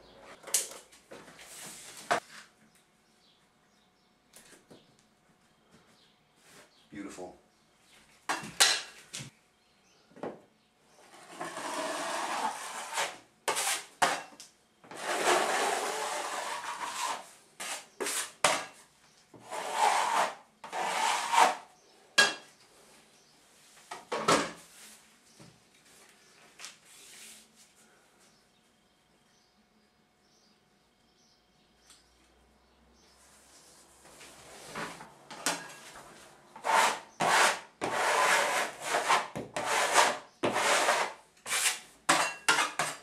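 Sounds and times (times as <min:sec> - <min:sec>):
knife scraping joint compound: 0:11.0 - 0:18.8, 0:19.4 - 0:22.5, 0:36.6 - 0:43.0.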